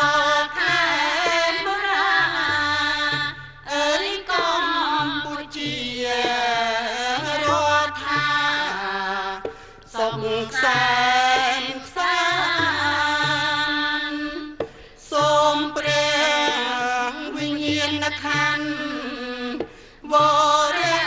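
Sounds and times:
instrumental accompaniment: 0.0s - 21.0s.

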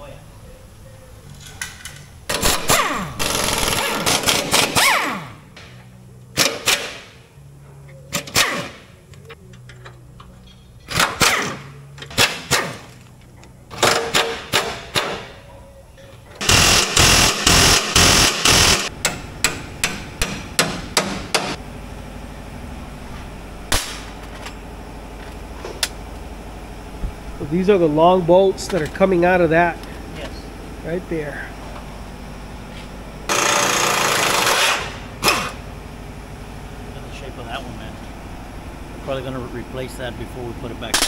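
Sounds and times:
low hum: 0.0s - 13.8s
impact wrench rattling bursts: 2.3s - 5.4s, 16.4s - 21.6s, 33.3s - 35.6s.

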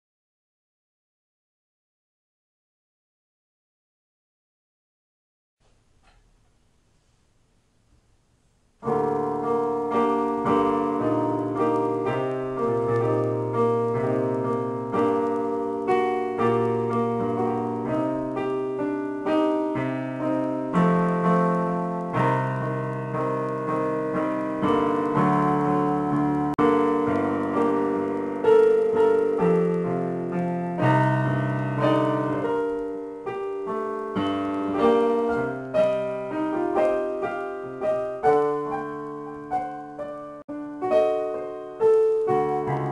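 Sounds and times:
electronic keyboard piano chords: 8.8s - 42.9s.

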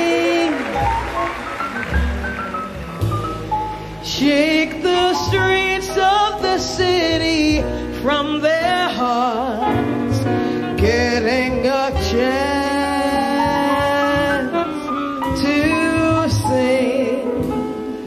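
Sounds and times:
person singing with vibrato: 0.0s - 0.9s
big band jazz: 0.0s - 18.0s.

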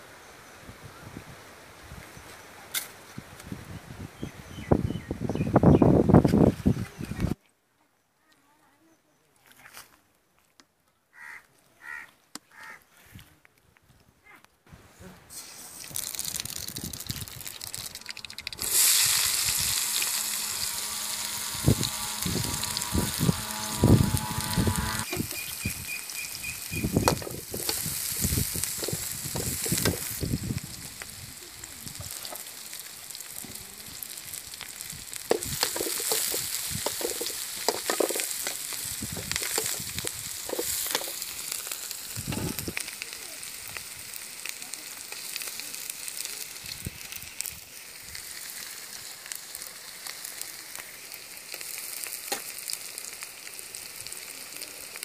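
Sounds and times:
onions sizzling in oil: 15.3s - 55.0s
metal spoon scraping pan: 35.3s - 41.3s.

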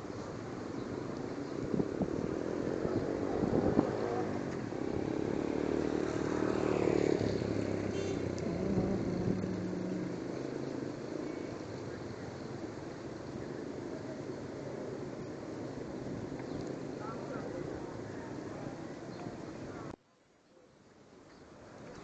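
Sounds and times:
motorcycles passing on wet road: 1.3s - 12.8s.

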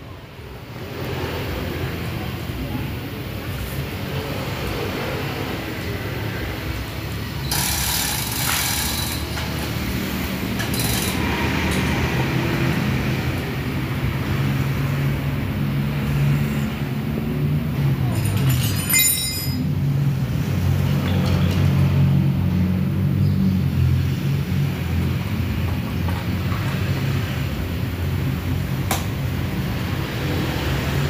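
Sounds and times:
metallic clatter of bolts: 18.1s - 19.7s.

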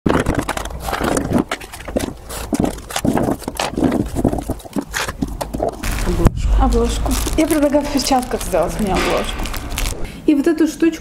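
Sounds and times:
objects clicking and knocking in drawer: 0.1s - 5.8s.

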